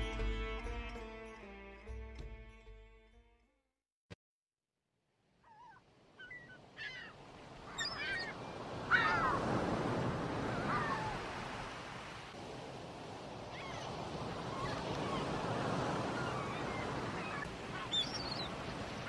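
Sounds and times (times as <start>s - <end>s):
gulls calling: 5.4s - 9.7s, 10.4s - 11.3s, 13.5s - 19.0s.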